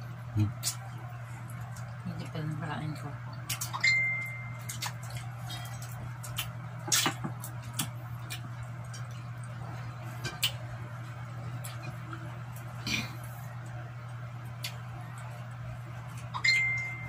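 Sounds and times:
steady low hum: 0.0 - 17.0
chewing: 3.3 - 16.8.

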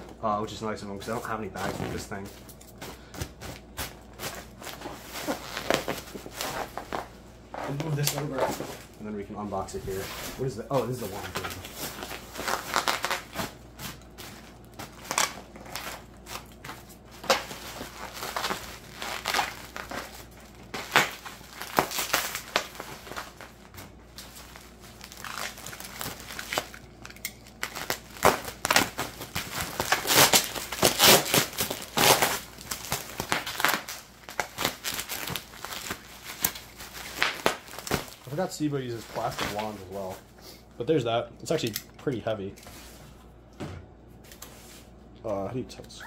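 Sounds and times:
bubble wrap crinkling: 0.0 - 40.4
packing peanuts rustling: 7.7 - 40.2.

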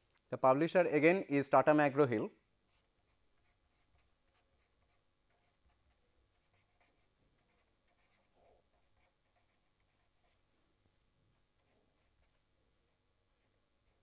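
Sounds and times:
pen scratching on paper: 2.7 - 10.5, 11.6 - 12.4.

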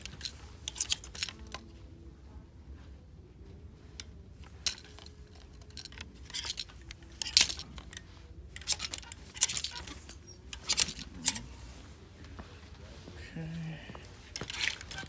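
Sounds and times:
clothes hangers clattering on rack: 0.0 - 1.8, 4.0 - 11.9, 14.2 - 15.0.

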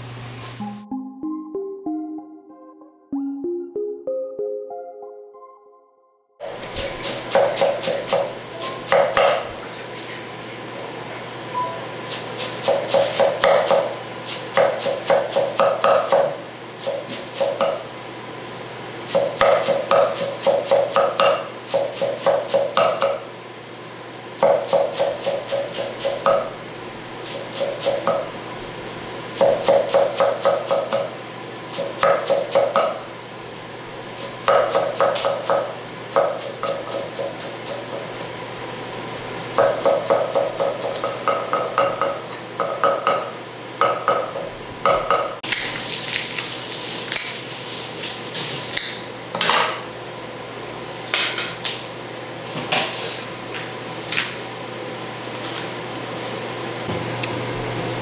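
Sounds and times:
knife chopping on wooden board: 6.7 - 9.5, 12.1 - 17.8, 19.1 - 23.2, 24.4 - 26.5, 27.3 - 28.3, 29.4 - 31.1, 34.2 - 38.1, 39.6 - 45.8.

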